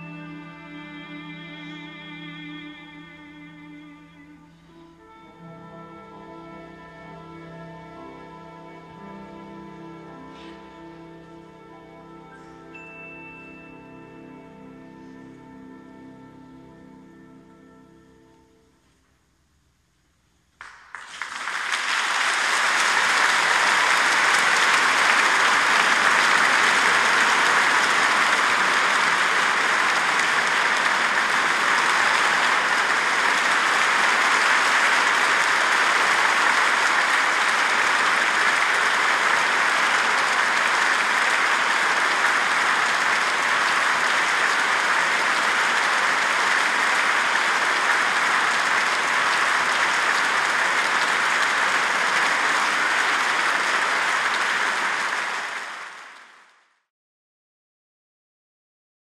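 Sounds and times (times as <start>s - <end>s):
large audience applauding: 7.9s - 11.2s, 20.6s - 56.9s.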